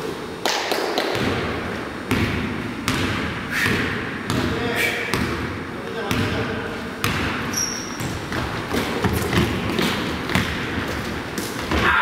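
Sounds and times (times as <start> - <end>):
basketball bouncing on wooden floor: 1.0 - 12.0
sneaker squeak: 7.4 - 10.5.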